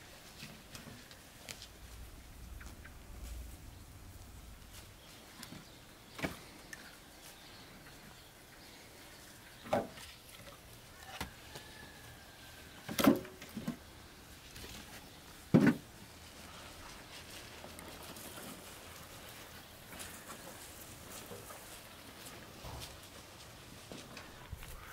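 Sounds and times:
wooden logs clunking: 0:15.5 - 0:15.9.

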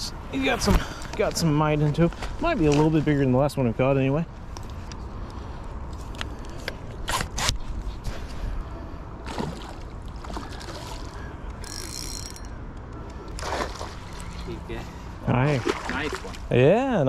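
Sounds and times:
fishing reel ticking: 0:11.6 - 0:12.6
fish splashing: 0:13.3 - 0:14.4, 0:15.6 - 0:16.5.

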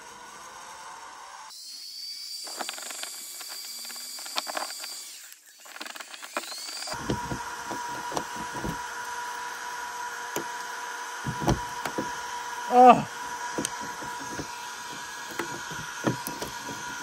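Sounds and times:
steady hum: 0:11.2 - 0:17.0.

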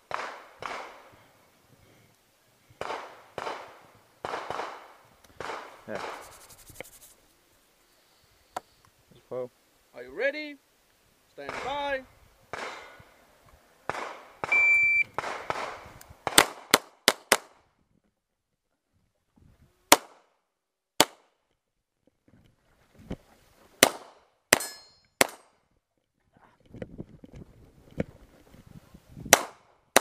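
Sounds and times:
pistol shots: 0:00.1 - 0:01.1, 0:02.8 - 0:06.2, 0:12.5 - 0:12.9, 0:13.9 - 0:14.6, 0:15.2 - 0:17.5, 0:23.8 - 0:25.5, 0:29.3 - 0:30.0
shot timer beep: 0:14.5 - 0:15.1.

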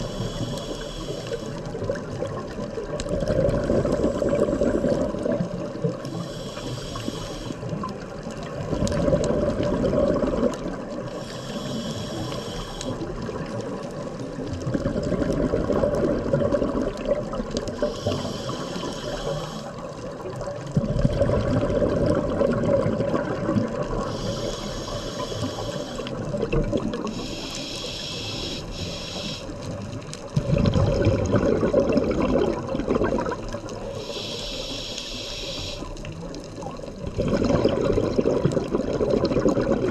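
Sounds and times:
hissing regulator inhale: 0:00.0 - 0:01.9, 0:03.8 - 0:05.4, 0:06.0 - 0:08.0, 0:11.1 - 0:13.2, 0:17.7 - 0:19.9, 0:23.9 - 0:26.3, 0:27.0 - 0:29.9, 0:33.7 - 0:36.1
exhaled bubbles rushing: 0:01.7 - 0:06.0, 0:07.7 - 0:11.1, 0:13.1 - 0:17.9, 0:20.0 - 0:24.2, 0:26.1 - 0:27.3, 0:29.7 - 0:33.9, 0:36.8 - 0:39.9.

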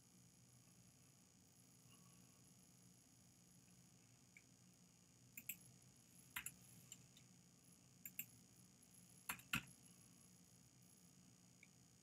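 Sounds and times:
keyboard and mouse clicks: 0:05.4 - 0:05.6, 0:06.4 - 0:06.6, 0:08.0 - 0:08.3, 0:09.3 - 0:09.7.

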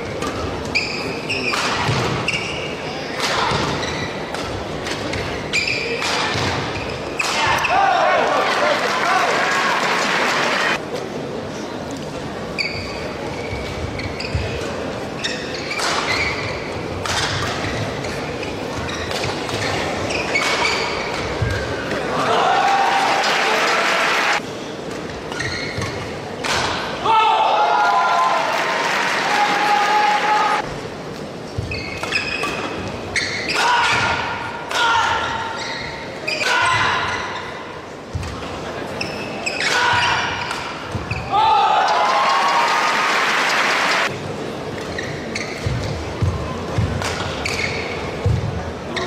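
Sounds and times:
crowd noise: 0:00.0 - 0:49.0
shoes squeaking on court: 0:00.1 - 0:02.9, 0:03.5 - 0:07.3, 0:12.5 - 0:22.0, 0:24.9 - 0:26.2, 0:31.4 - 0:33.6, 0:35.6 - 0:36.4, 0:37.1 - 0:41.4, 0:44.6 - 0:49.0
racket hitting shuttlecock: 0:17.0 - 0:17.8, 0:18.9 - 0:22.0, 0:39.5 - 0:41.1.

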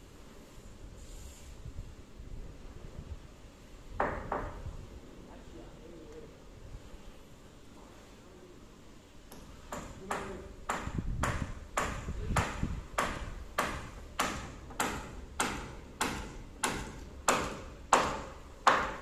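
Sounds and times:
hammer blows on nail: 0:09.7 - 0:19.0.

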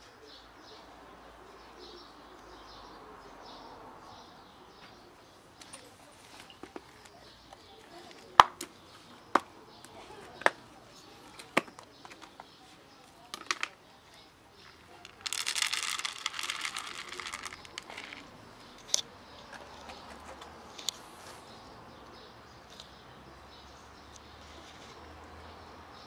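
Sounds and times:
dry kibble poured into plastic box: 0:15.0 - 0:18.3.

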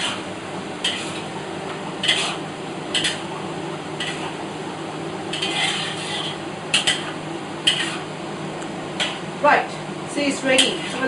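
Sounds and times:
frying hiss: 0:00.0 - 0:11.0
ladle scraping across wok: 0:00.8 - 0:01.3, 0:02.0 - 0:03.3, 0:04.0 - 0:04.4, 0:05.3 - 0:08.1, 0:10.5 - 0:11.0.

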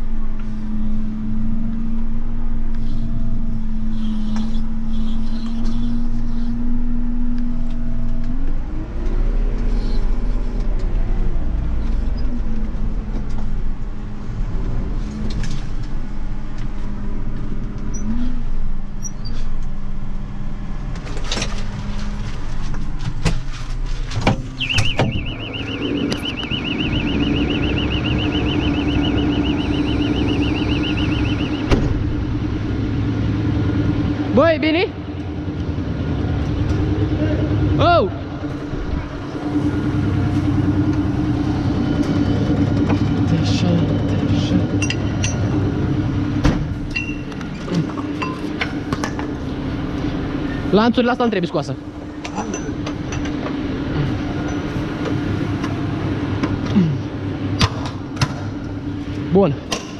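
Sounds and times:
tractor engine running: 0:07.4 - 0:59.9
high warbling beep: 0:24.5 - 0:32.2.

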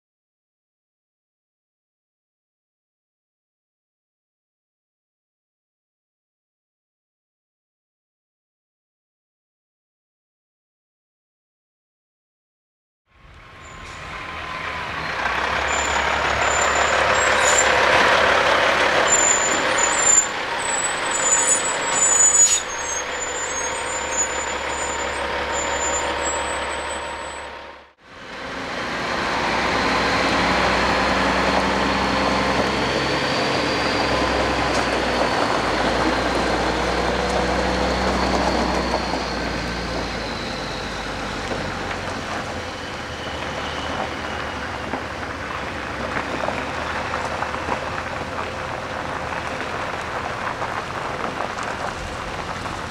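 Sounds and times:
diesel truck engine running: 0:13.2 - 0:52.9
high squeaks: 0:13.6 - 0:27.9, 0:29.7 - 0:45.1.

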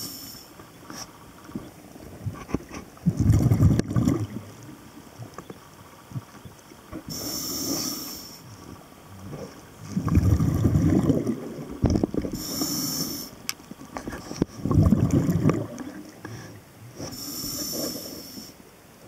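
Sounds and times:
regulator inhale hiss: 0:00.0 - 0:00.6, 0:07.1 - 0:08.5, 0:12.3 - 0:13.4, 0:16.2 - 0:18.6
bubbles exhaled underwater: 0:02.9 - 0:04.8, 0:08.6 - 0:12.7, 0:14.5 - 0:16.2.

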